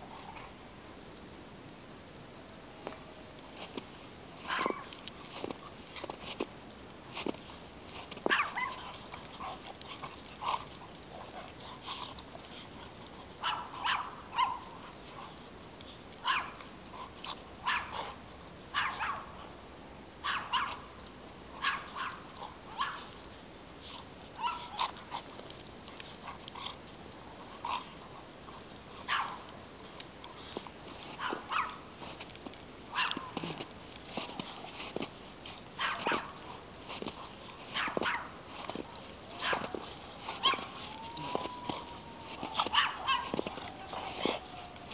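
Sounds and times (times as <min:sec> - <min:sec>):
dog barking: 0:04.5 - 0:04.9, 0:08.3 - 0:09.0, 0:13.4 - 0:14.7, 0:16.2 - 0:16.6, 0:17.6 - 0:19.3, 0:20.2 - 0:20.8, 0:21.6 - 0:23.1, 0:24.4 - 0:24.9, 0:29.0 - 0:29.5, 0:31.2 - 0:31.8, 0:32.9 - 0:33.4, 0:35.8 - 0:36.4, 0:37.7 - 0:38.3, 0:39.3 - 0:44.9.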